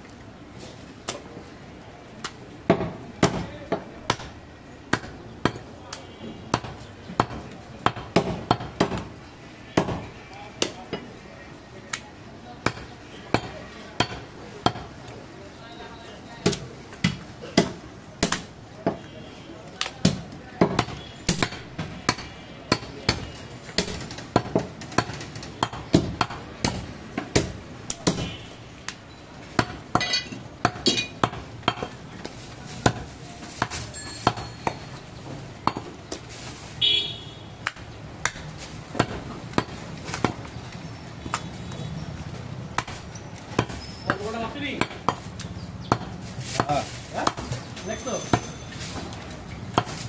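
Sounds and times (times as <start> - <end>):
cleaver chopping on wooden block: 6.5 - 9.1, 16.4 - 19.1, 19.8 - 29.0, 37.6 - 40.4, 44.8 - 45.3, 45.9 - 47.6.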